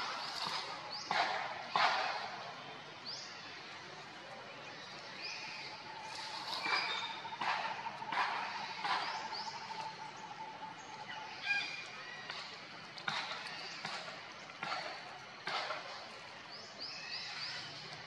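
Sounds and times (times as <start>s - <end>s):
birds chirping and whistling: 0.0s - 2.4s, 4.7s - 14.1s, 16.5s - 17.9s.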